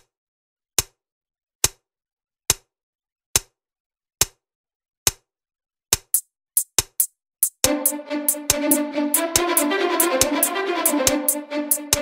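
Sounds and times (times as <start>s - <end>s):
sharp percussive clicks: 5.9s - 12.0s.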